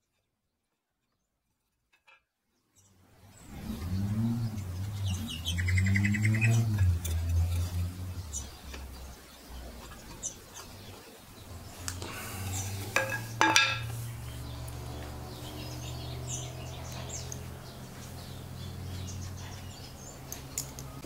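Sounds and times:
steady low hum: 3.0 - 19.2.

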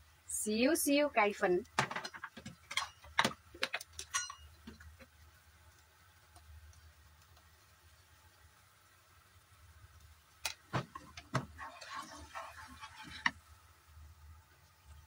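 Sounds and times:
kitchen utensils clicking: 1.9 - 4.5.

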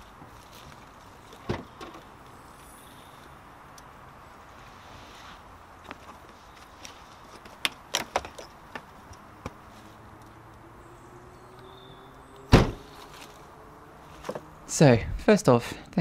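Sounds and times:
car tailgate slammed shut: 12.5 - 12.9.

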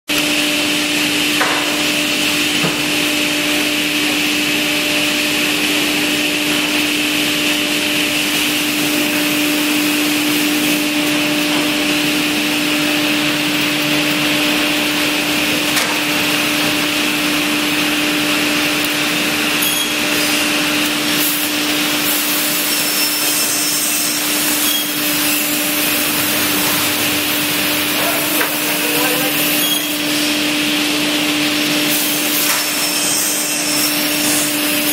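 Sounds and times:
panel saw running: 0.2 - 34.9.

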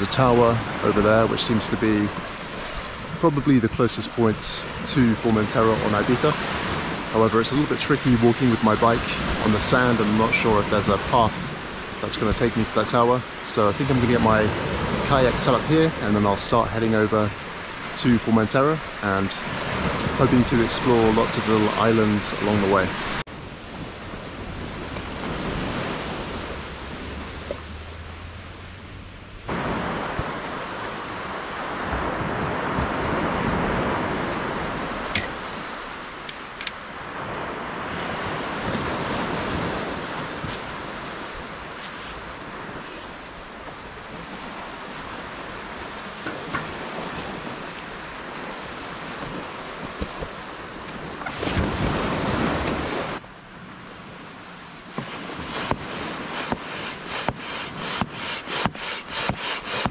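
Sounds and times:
waves washing up a beach: 0.0 - 59.9
wind on microphone: 29.4 - 53.2, 54.1 - 59.9.

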